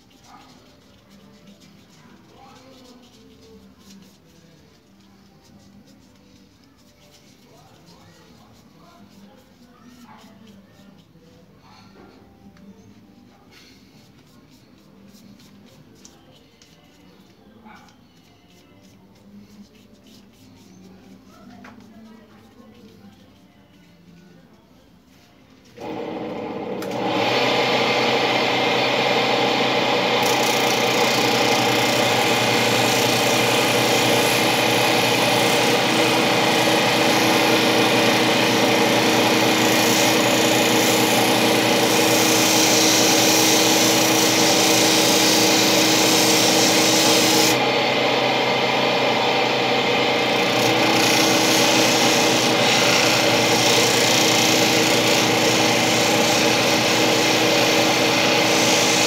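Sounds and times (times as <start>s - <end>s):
power tool abrading material: 25.8s - 59.0s.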